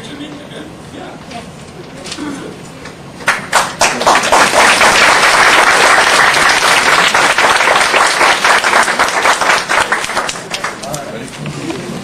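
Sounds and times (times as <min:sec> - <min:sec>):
audience applauding: 0:03.2 - 0:11.0.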